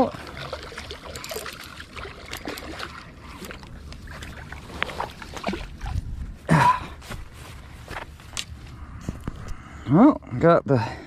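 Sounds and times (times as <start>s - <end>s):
fish splashing at the surface: 4.1s - 6.0s.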